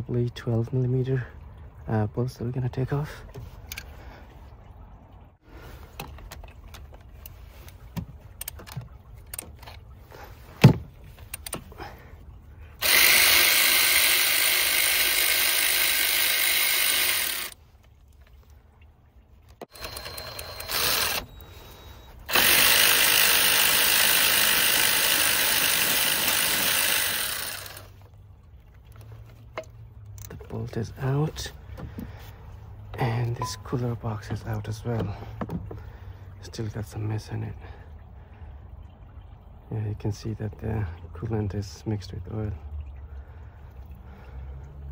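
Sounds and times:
electric ratchet running: 12.8s - 17.6s, 19.6s - 27.9s.

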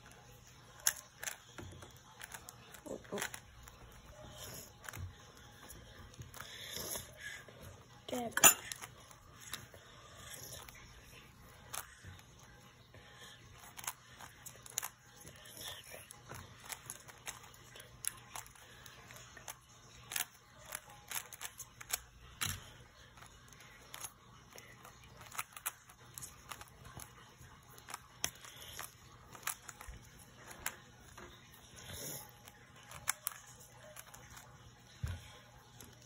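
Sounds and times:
plastic puzzle cube clicking: 23.2s - 27.1s, 27.8s - 30.7s.

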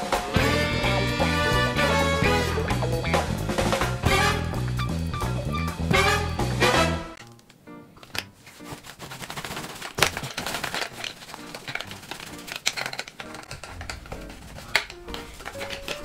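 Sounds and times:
quiet background music: 0.0s - 16.0s
lint roller crackling on cloth: 8.2s - 16.0s.

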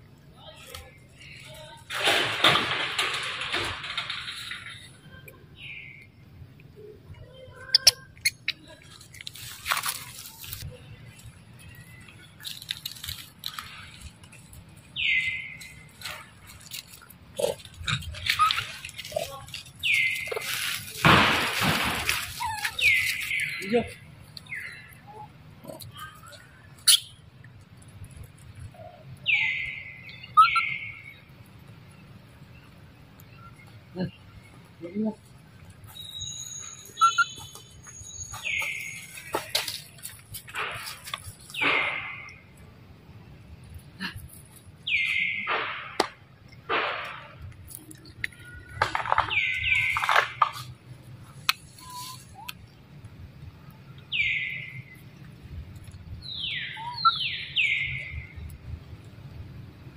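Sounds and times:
baby monkey whining: 22.3s - 23.4s, 36.9s - 37.6s.

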